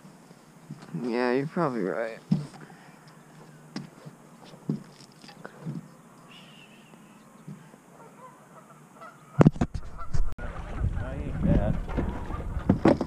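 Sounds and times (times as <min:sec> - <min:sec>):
faint bird call: 0:05.4 - 0:09.4.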